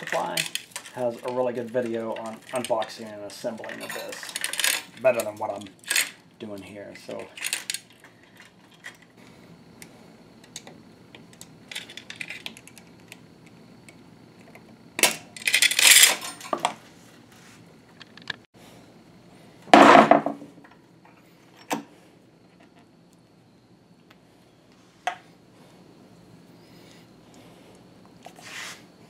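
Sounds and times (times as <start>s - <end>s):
chain clinking and rattling on metal: 0.0s - 6.2s, 7.3s - 9.1s, 15.4s - 16.7s.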